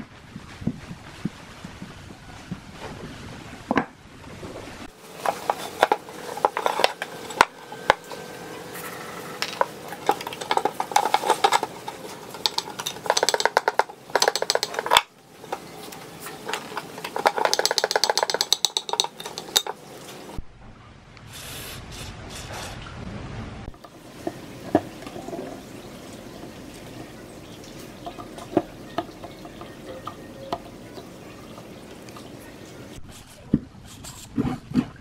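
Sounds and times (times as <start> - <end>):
metal clinking: 5.2 - 15.1, 16.2 - 19.8
spanner on a rusted nut: 9.4 - 15.1, 16.5 - 19.8.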